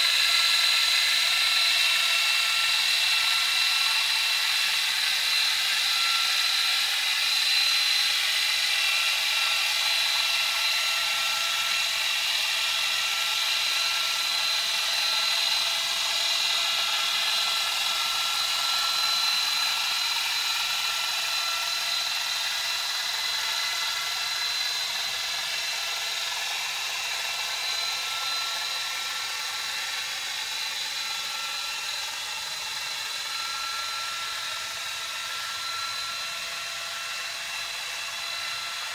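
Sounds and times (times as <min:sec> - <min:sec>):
high whining tones: 0:26.2 - 0:38.9.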